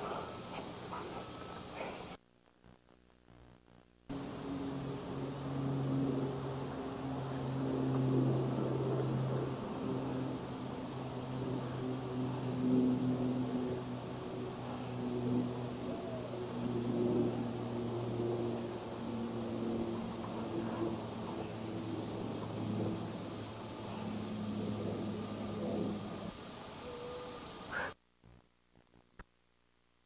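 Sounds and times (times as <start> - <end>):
high insect trill: 0.0 - 2.2, 4.1 - 28.0
tape hum and hiss: 0.0 - 30.0.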